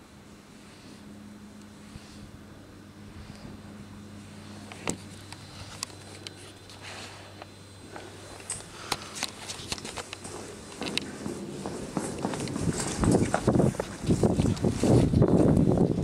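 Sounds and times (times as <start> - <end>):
wind turbine low hum: 0.0 - 16.0
footsteps on grass: 7.9 - 15.1.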